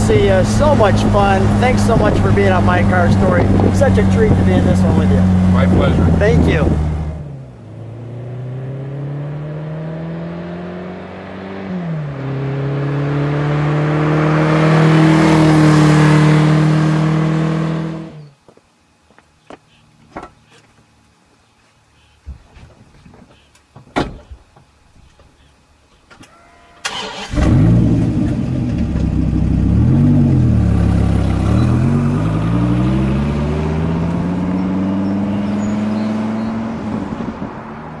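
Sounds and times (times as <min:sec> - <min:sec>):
car engine accelerating past: 0:04.5 - 0:18.2, 0:26.8 - 0:38.0.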